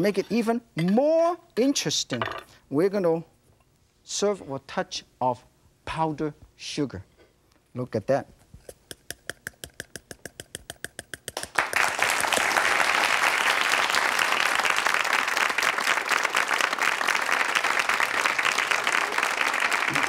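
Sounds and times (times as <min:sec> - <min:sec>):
audience applause: 0:11.4 - 0:20.0.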